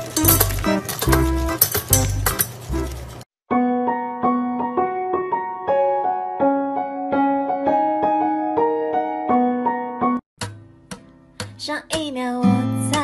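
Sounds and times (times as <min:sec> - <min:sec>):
piano melody: 0:00.0 - 0:10.2.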